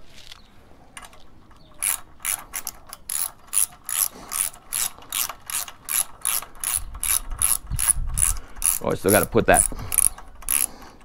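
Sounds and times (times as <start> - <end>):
ratchet wrench clicking: 1.8 - 11.0.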